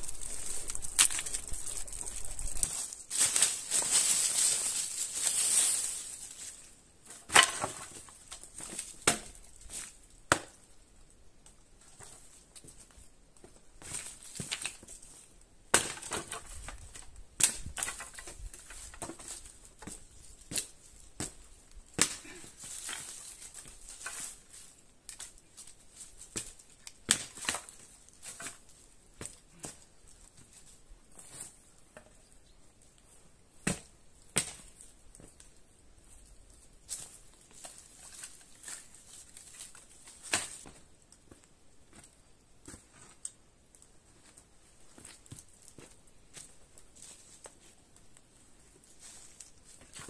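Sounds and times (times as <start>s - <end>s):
wood cracking and breaking: 0.0s - 4.2s
crunching and rustling: 0.0s - 10.6s, 13.8s - 32.2s, 33.8s - 50.0s.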